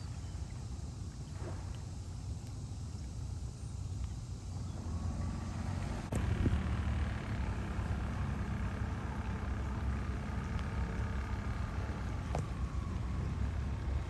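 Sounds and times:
outboard motor running: 0:02.9 - 0:14.0.

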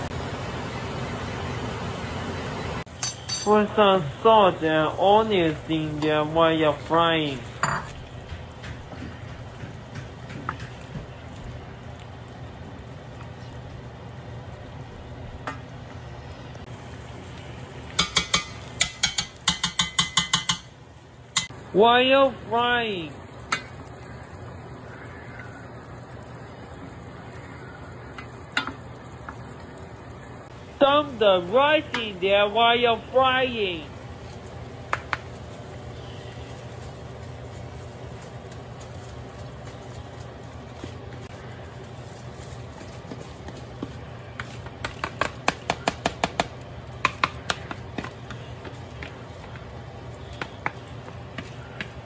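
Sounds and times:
broth bubbling in a pan: 0:03.8 - 0:21.7, 0:22.8 - 0:52.0
wooden spoon knocking on pan: 0:07.5 - 0:11.4, 0:17.9 - 0:20.7, 0:34.9 - 0:35.3, 0:43.8 - 0:49.6.

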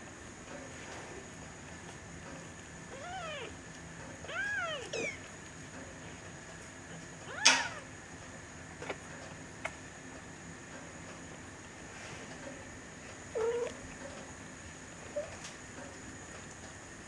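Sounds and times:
kittens mewing: 0:02.9 - 0:03.6, 0:04.2 - 0:05.3, 0:07.2 - 0:08.0.

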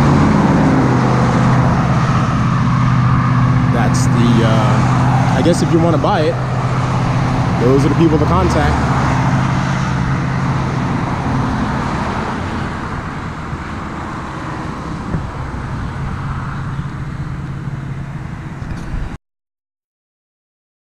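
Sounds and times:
passing cars engine hum: 0:00.0 - 0:19.2.

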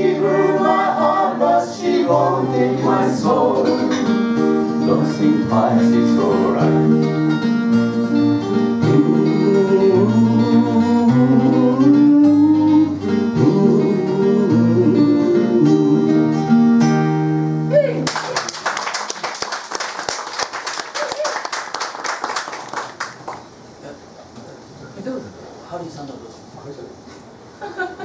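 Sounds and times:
acoustic guitars: 0:00.0 - 0:18.4
person singing: 0:04.8 - 0:07.2, 0:08.8 - 0:16.4
audience applause: 0:18.0 - 0:23.4.

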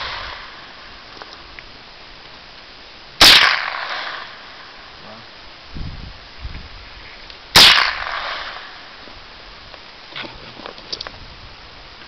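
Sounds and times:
rifle shot: 0:03.2 - 0:04.6, 0:07.6 - 0:08.8.

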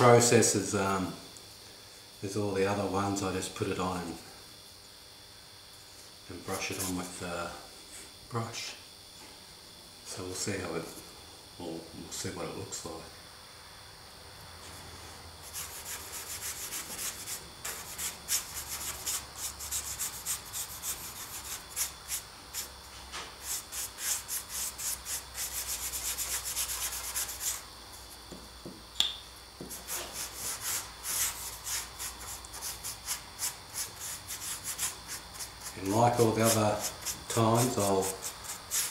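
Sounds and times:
sharp click: 0:29.0 - 0:29.2
brush scrubbing scratchy strokes: 0:29.8 - 0:38.9.

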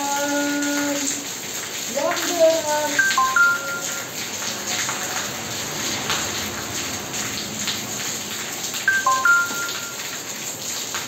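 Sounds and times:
rain splashing on tiled floor: 0:00.0 - 0:11.0
short electronic beeps: 0:03.0 - 0:04.0, 0:08.9 - 0:10.1.

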